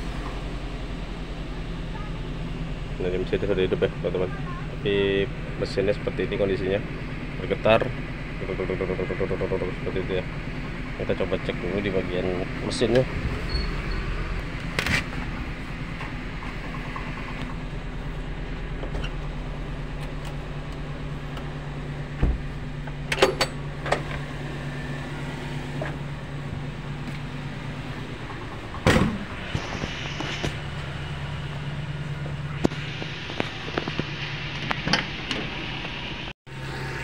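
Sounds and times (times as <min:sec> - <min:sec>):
engine idling and misfiring: 0:00.0 - 0:37.0
knocks of handling in cab: 0:22.1 - 0:24.2.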